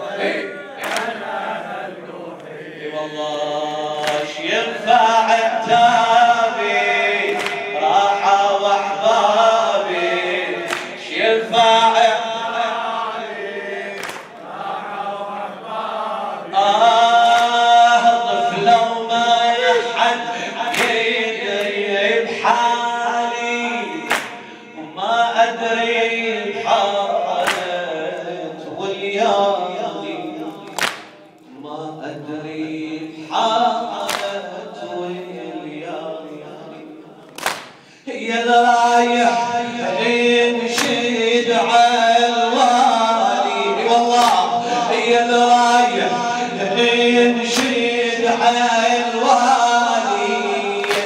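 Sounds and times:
men chanting in chorus: 0.0 - 51.0
hands slapping chests: 0.8 - 1.2, 4.0 - 4.4, 7.3 - 7.6, 10.6 - 11.0, 14.0 - 14.4, 17.2 - 17.6, 20.7 - 21.8, 24.1 - 24.4, 27.4 - 27.7, 30.6 - 31.4, 34.0 - 34.4, 37.3 - 37.9, 40.8 - 41.0, 47.6 - 47.8, 50.8 - 51.0.

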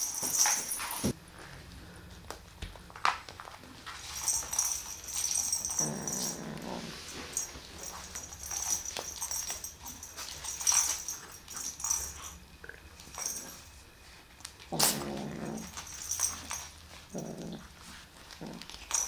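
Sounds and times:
toy rustling and clicks: 3.4 - 12.4, 15.6 - 17.1
kitten growling: 5.6 - 7.1, 14.6 - 16.2, 17.1 - 19.0.

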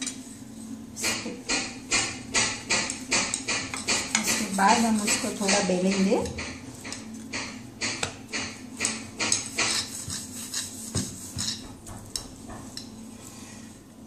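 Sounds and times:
rolling pin knocking on steel plate: 1.1 - 10.2.

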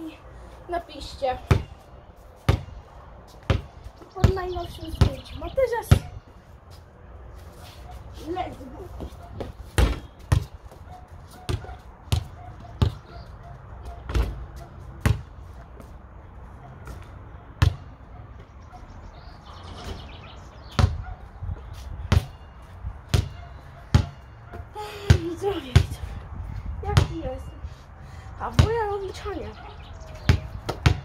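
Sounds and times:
basketball bouncing: 1.4 - 1.8, 2.4 - 2.8, 3.4 - 5.3, 9.0 - 13.1, 13.8 - 15.3, 17.6 - 17.9, 20.7 - 21.0, 22.1 - 22.4, 23.1 - 26.0, 26.9 - 27.2, 28.5 - 29.0, 30.2 - 31.0.

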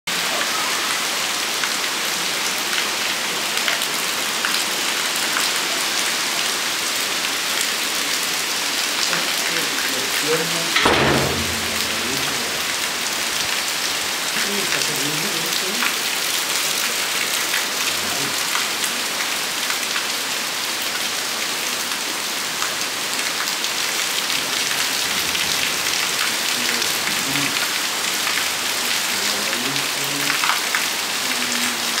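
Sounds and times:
heavy rain: 0.1 - 32.0
raindrops ticking: 9.0 - 18.7.

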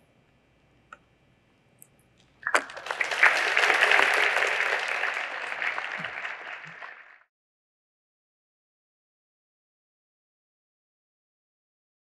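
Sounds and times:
audience applauding: 2.4 - 7.3.

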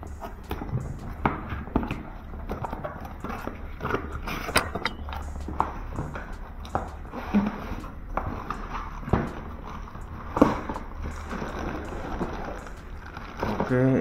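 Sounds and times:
plastic bag rustling: 5.7 - 14.0.

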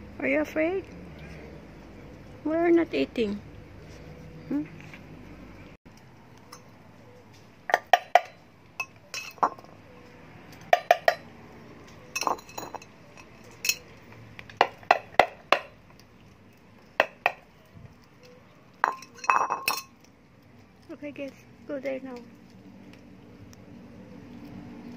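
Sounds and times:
metal bowls clinking on concrete: 6.4 - 6.8, 7.7 - 20.2.

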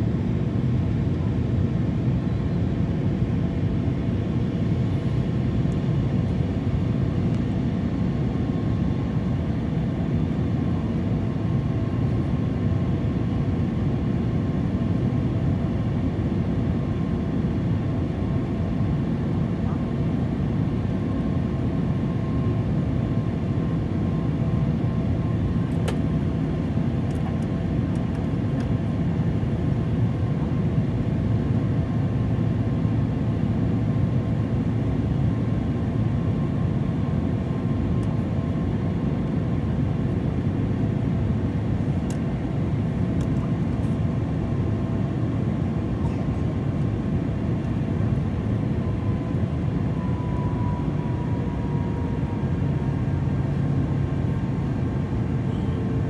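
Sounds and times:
jet engine and airflow rumble: 0.0 - 56.0
faint engine tones: 41.8 - 56.0.

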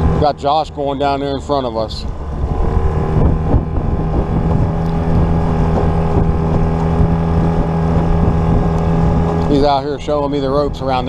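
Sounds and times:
outboard motor running: 0.0 - 11.0
wind buffeting microphone: 0.0 - 11.0
boat hull knocking on water: 5.3 - 9.4.

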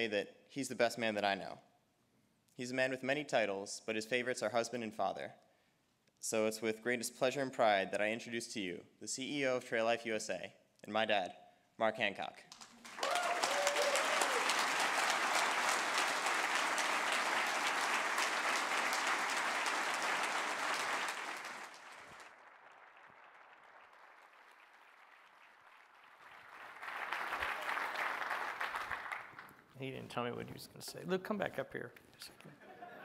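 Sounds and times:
large audience applauding: 12.5 - 29.6.

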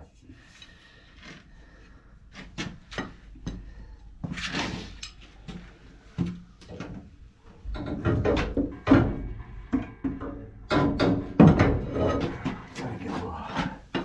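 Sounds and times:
metal knocks and clunks: 6.7 - 12.8.

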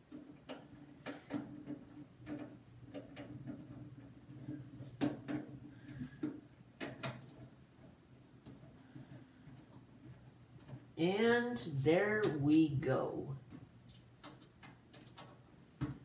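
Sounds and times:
low steady hum: 7.3 - 14.3.

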